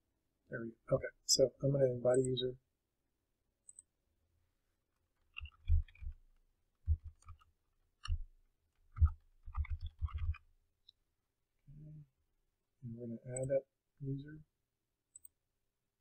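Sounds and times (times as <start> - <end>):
keyboard typing: 5.0 - 10.5.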